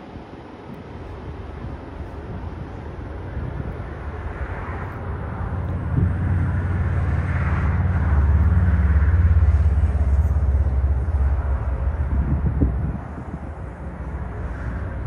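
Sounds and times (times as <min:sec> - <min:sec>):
jet airliner engine rumble: 0:00.0 - 0:15.0.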